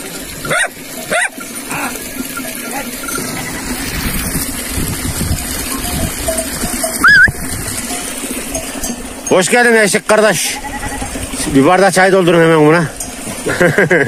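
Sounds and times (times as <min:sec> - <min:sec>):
dog barking: 0:00.5 - 0:01.4.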